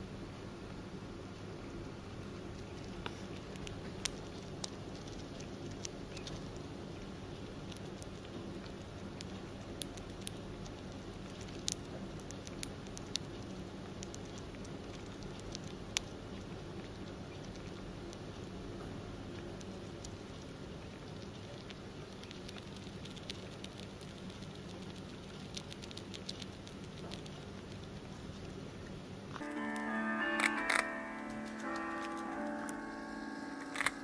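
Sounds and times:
hamster cracking seed shells: 0:02.1 - 0:18.5, 0:19.3 - 0:28.6.

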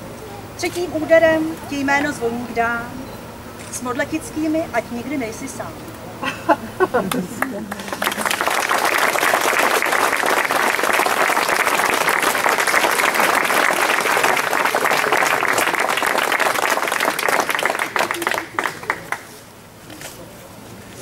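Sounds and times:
audience applauding: 0:07.1 - 0:19.4.

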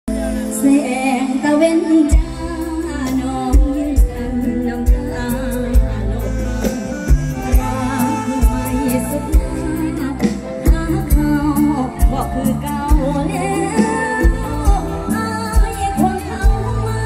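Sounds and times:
live band music over loudspeakers: 0:00.1 - 0:17.0
sustained bass: 0:00.1 - 0:17.0.

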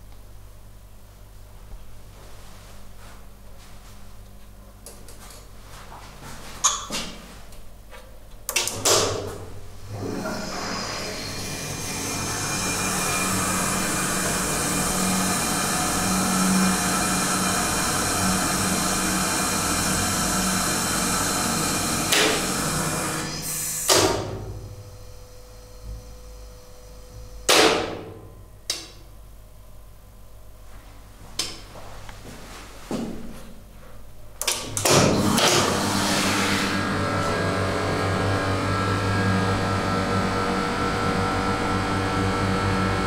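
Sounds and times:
pump motor shutting off clunk: 0:08.5 - 0:24.7, 0:34.4 - 0:40.4
hydraulic pump motor humming: 0:09.8 - 0:24.7, 0:34.6 - 0:43.0.

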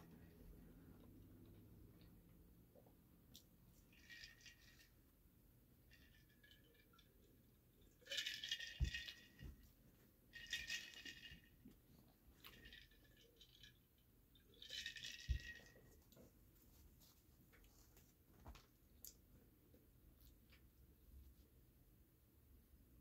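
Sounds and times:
ice cubes rattling in glass jar: 0:07.9 - 0:09.4, 0:14.4 - 0:15.8.

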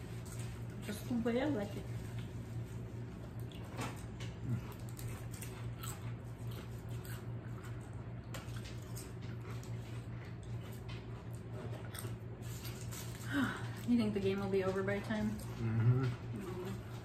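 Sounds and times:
chewing and lip smacks: 0:03.3 - 0:13.2.

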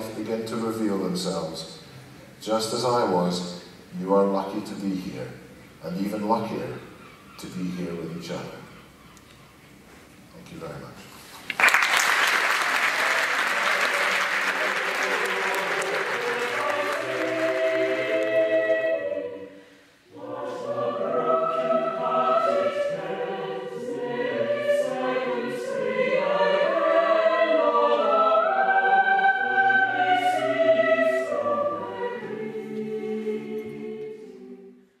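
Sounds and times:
choir singing held chords: 0:12.8 - 0:35.0.

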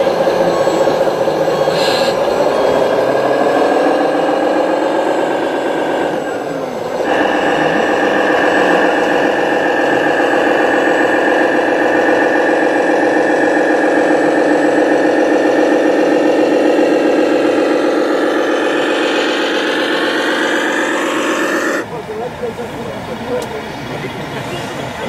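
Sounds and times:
model truck mechanical drone: 0:00.0 - 0:25.0.

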